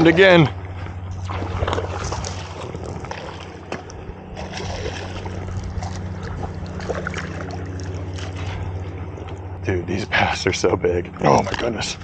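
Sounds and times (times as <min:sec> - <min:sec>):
steady low hum: 0:00.0 - 0:12.0
fish splashing in water: 0:01.1 - 0:09.5.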